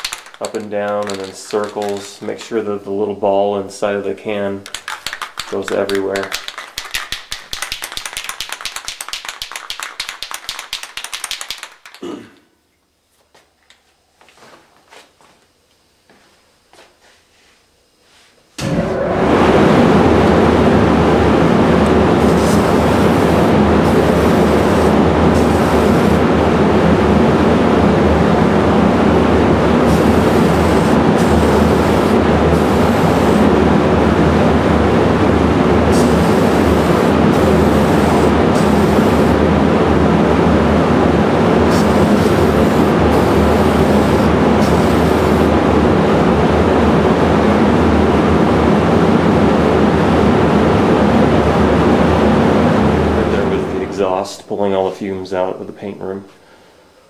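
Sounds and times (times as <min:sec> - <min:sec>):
aerosol can spraying: 0:00.0 - 0:02.1, 0:04.7 - 0:12.0, 0:22.2 - 0:26.2, 0:29.8 - 0:33.5, 0:35.9 - 0:39.4, 0:41.7 - 0:45.5
exhaust fan running: 0:00.0 - 0:07.1, 0:18.5 - 0:57.0.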